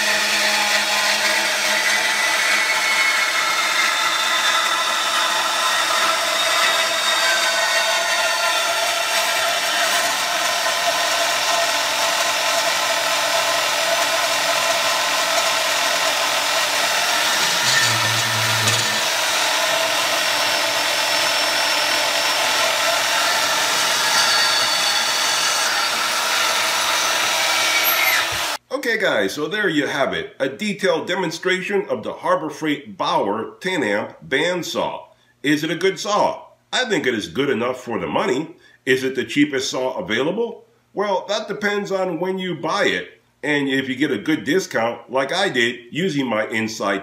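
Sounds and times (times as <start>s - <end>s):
bandsaw cutting metal: 0.0s - 28.6s.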